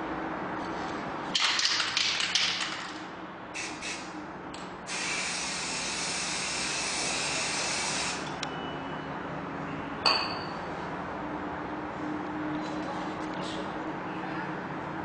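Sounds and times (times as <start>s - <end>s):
spray paint hissing: 3.6s - 4.2s, 4.9s - 8.4s
sharp clink: 10.0s - 10.6s.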